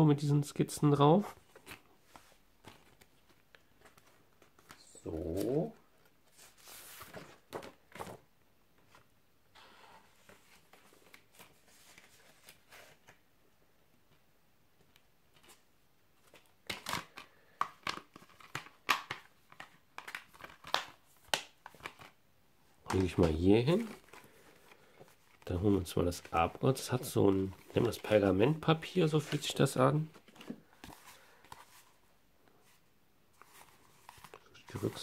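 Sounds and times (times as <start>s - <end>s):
plastic and cardboard crinkling: 1.2s - 8.2s, 16.2s - 22.2s, 22.8s - 35.0s.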